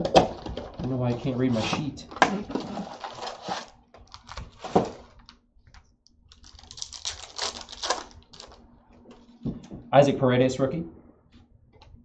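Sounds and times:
plastic wrapper crinkling and tearing: 2.5 - 8.6.

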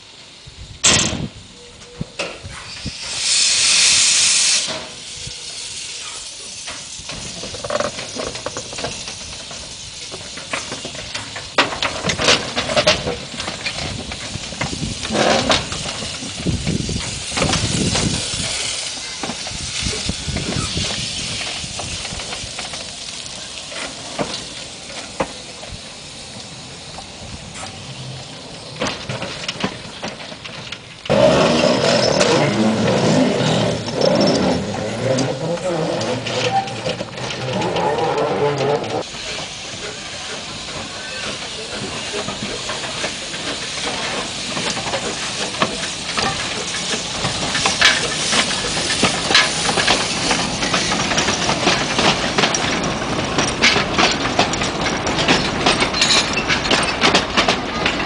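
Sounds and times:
loud steam hiss burst: 0.0 - 35.5, 39.0 - 53.4
steam locomotive hissing: 0.0 - 58.0
clanks and knocks: 6.6 - 23.0, 28.8 - 58.0.

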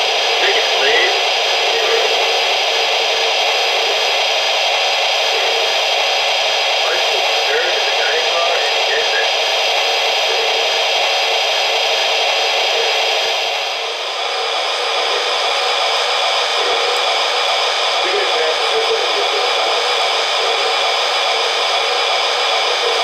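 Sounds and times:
hissing turbine sound from speaker: 0.0 - 23.0.

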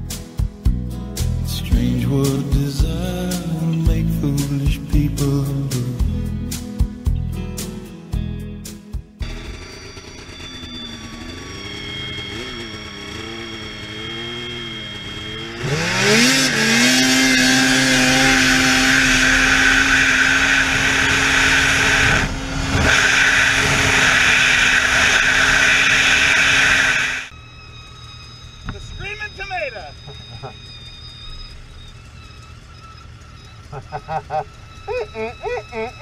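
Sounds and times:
snowmobile engine revving: 9.2 - 27.3, 28.7 - 36.0.

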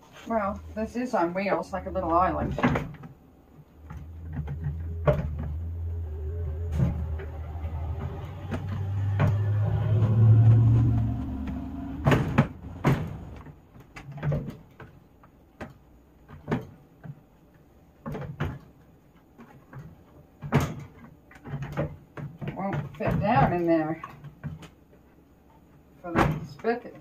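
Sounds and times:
low steady rumble: 0.0 - 13.7.

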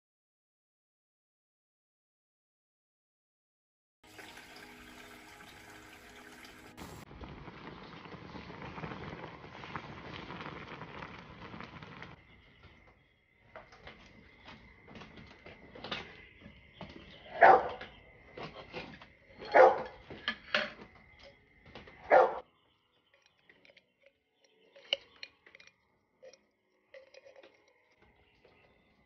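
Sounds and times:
dog barking: 17.3 - 17.8, 19.4 - 20.0, 22.1 - 22.4.

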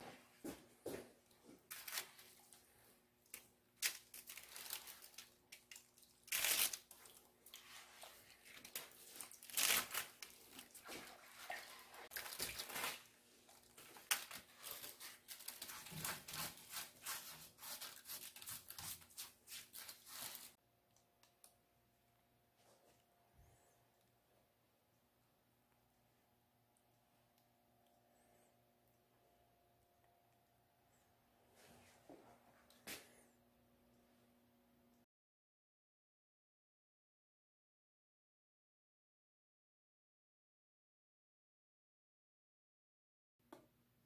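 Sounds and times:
plastic sheeting crinkling: 1.5 - 20.6
wet sponge scrubbing ceramic: 14.8 - 20.6.

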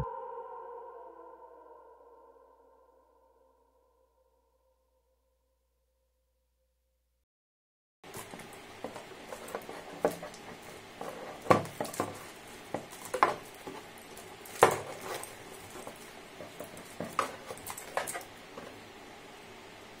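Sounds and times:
plastic bag crinkling: 8.1 - 18.9.

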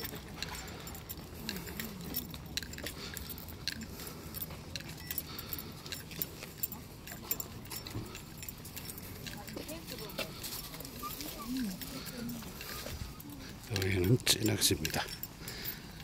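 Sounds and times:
faint voices: 0.0 - 16.0
light clicks and jingling: 0.0 - 16.0.

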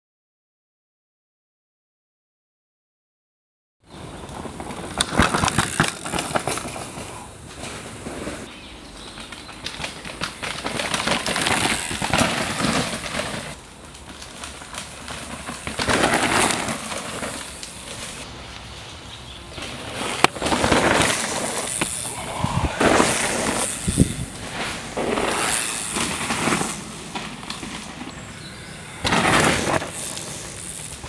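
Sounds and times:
bike frame and chain rattling: 4.0 - 7.2, 8.4 - 18.3, 20.3 - 31.0
bike tyres scrubbing through soil: 4.0 - 31.0.

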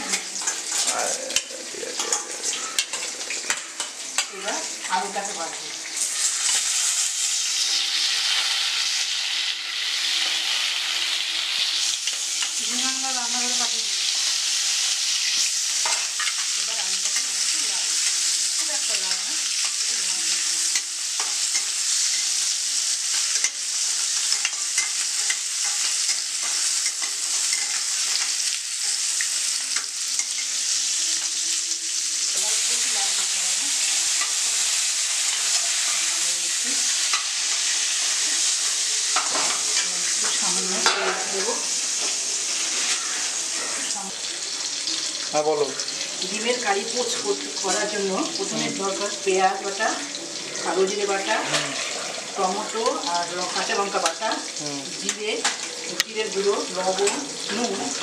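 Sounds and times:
potatoes sizzling in oil: 0.0 - 58.0
metal spatula scraping pan: 5.9 - 10.7, 50.4 - 54.2.

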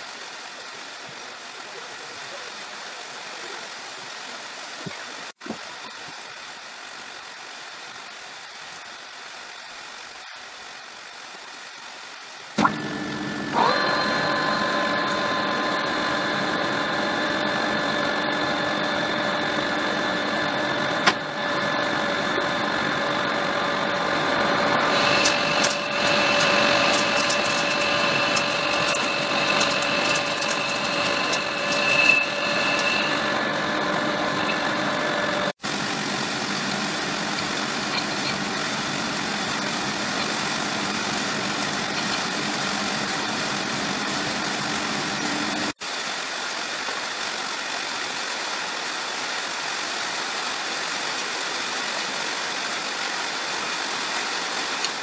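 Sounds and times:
metal lathe running: 12.6 - 45.8
cutting tool squealing: 23.9 - 35.5.

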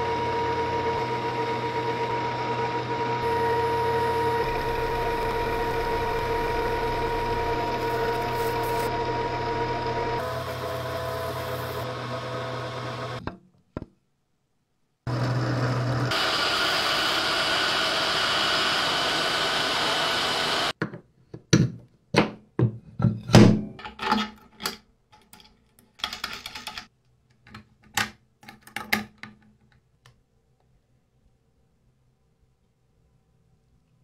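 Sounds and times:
machine whirring: 0.0 - 13.2.

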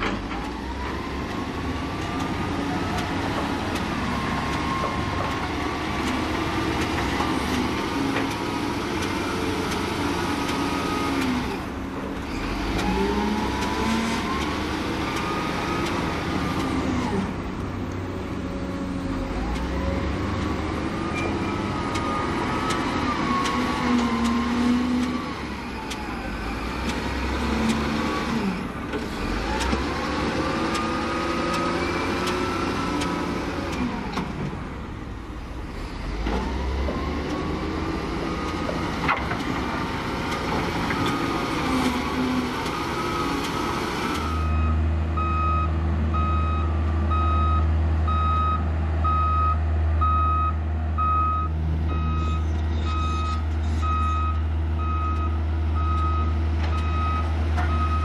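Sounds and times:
heavy machine engine working: 0.0 - 58.0
reversing alarm beeping: 44.3 - 58.0.

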